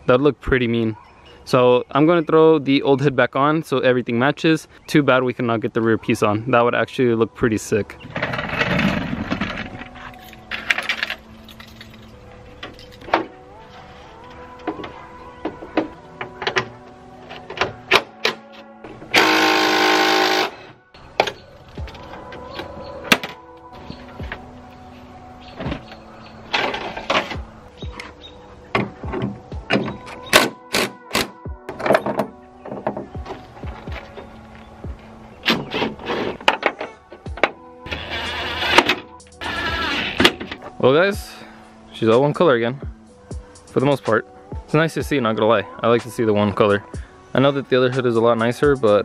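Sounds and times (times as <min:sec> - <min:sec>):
cordless impact driver bursts: 0:19.2 - 0:20.6
metal clanks and knocks: 0:31.7 - 0:34.2.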